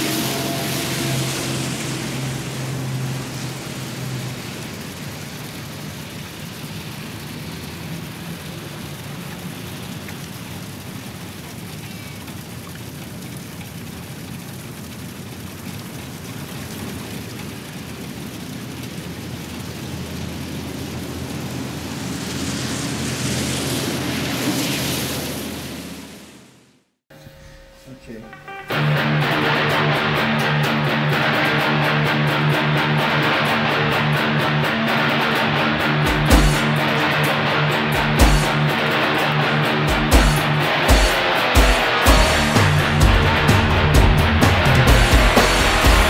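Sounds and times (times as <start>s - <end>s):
rain on wet pavement: 0.0s - 26.4s, 28.7s - 46.0s
rain splashing into puddle: 0.0s - 26.4s, 28.7s - 46.0s
low rumble: 42.1s - 46.0s.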